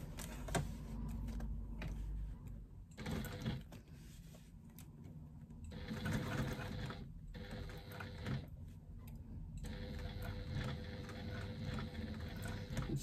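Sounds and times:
electric sewing machine stitching: 0:03.0 - 0:03.8, 0:05.7 - 0:08.5, 0:09.6 - 0:13.0.

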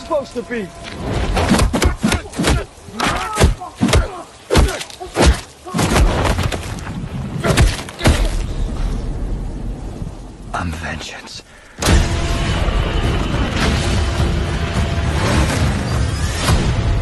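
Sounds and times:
people grunting and shouting: 0:01.5 - 0:06.2.

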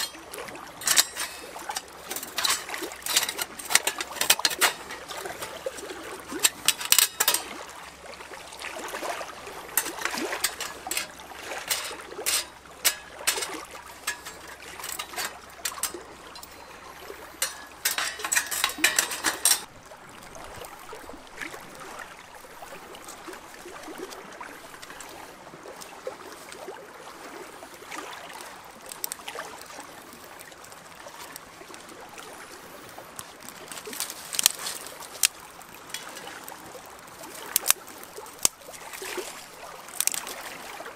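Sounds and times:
metal stove parts clinking: 0:00.0 - 0:07.6, 0:09.6 - 0:19.7, 0:33.7 - 0:36.3, 0:40.0 - 0:40.3
soft rush of fire: 0:00.0 - 0:07.8, 0:09.4 - 0:19.7
small wood fire crackling: 0:00.0 - 0:08.0, 0:09.4 - 0:20.3, 0:28.8 - 0:29.2, 0:32.7 - 0:40.4.

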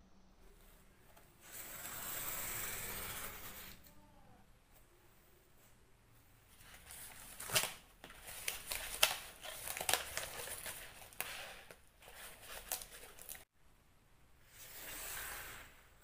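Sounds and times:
crinkling and rustling: 0:06.5 - 0:13.5.

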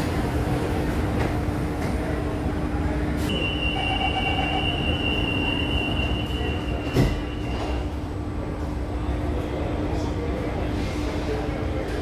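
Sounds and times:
low train running hum: 0:00.0 - 0:12.0
high-pitched train wheel squeal: 0:03.3 - 0:07.8.

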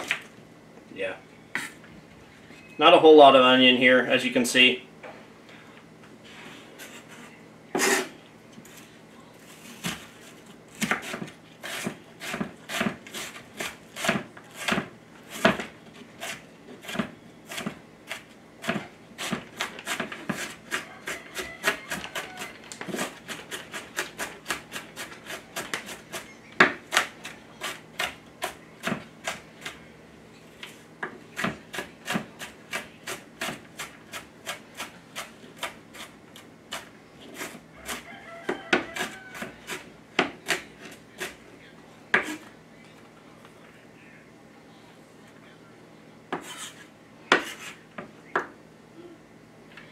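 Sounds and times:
knife blade scraping: 0:06.8 - 0:08.1, 0:46.4 - 0:47.8.

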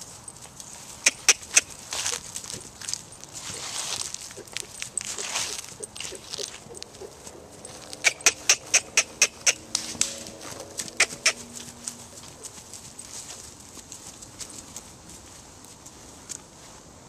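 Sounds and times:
person clicking tongue: 0:01.0 - 0:01.7, 0:07.9 - 0:09.8, 0:10.8 - 0:11.5.

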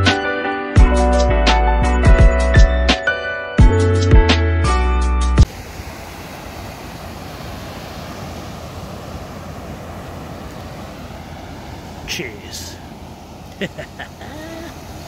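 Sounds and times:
music: 0:00.0 - 0:05.5
surf breaking on beach: 0:05.4 - 0:15.0
wind rushing: 0:05.5 - 0:15.0.

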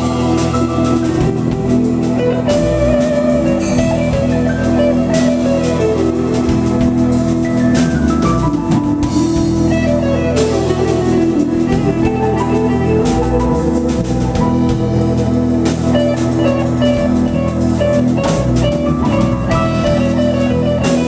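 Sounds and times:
bass guitar: 0:00.0 - 0:21.0
drum kit: 0:00.0 - 0:21.0
electric guitar: 0:00.0 - 0:21.0
keyboards: 0:00.0 - 0:21.0.

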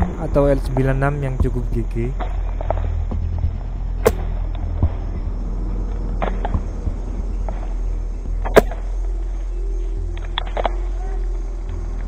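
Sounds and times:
low rumble on microphone: 0:00.0 - 0:12.0
airsoft gun shot: 0:04.0 - 0:04.3, 0:08.5 - 0:08.8.

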